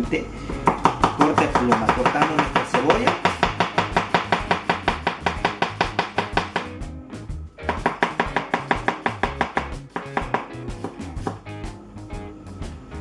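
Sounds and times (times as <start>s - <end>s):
knife chopping onion on board: 0.5s - 6.8s, 7.6s - 11.4s.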